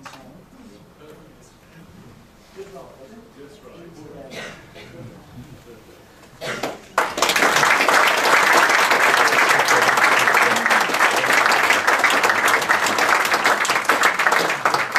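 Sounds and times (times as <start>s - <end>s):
audience applauding: 6.6s - 14.9s.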